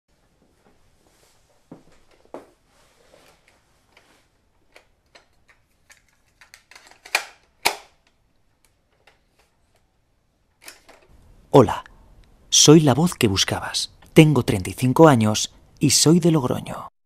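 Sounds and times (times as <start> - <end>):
cassette clicks and plastic rattles: 4.7 - 9.5.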